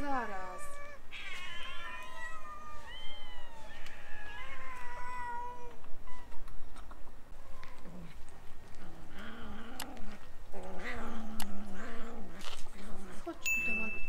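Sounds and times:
cats meowing: 0.0 - 8.2.

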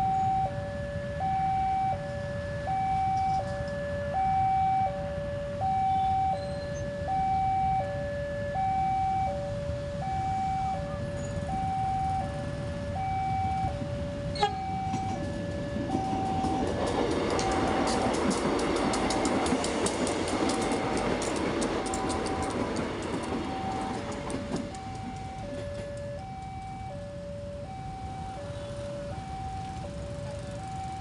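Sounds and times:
low traffic rumble: 0.0 - 31.0
two-tone crossing alarm: 0.0 - 31.0
passenger train rumble: 8.7 - 31.0.

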